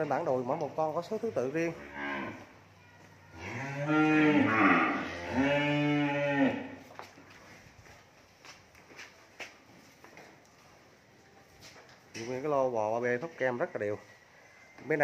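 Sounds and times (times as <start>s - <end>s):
young cattle mooing: 1.8s - 2.5s, 3.3s - 6.8s.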